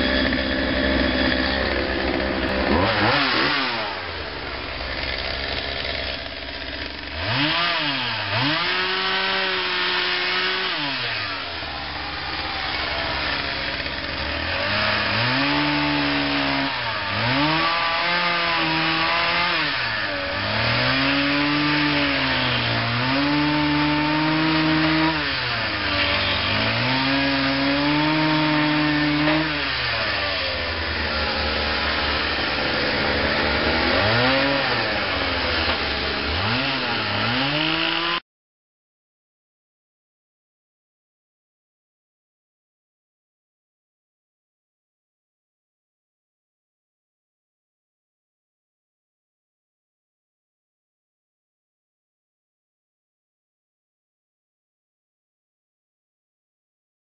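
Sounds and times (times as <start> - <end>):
chainsaw engine revving: 0.0 - 38.2.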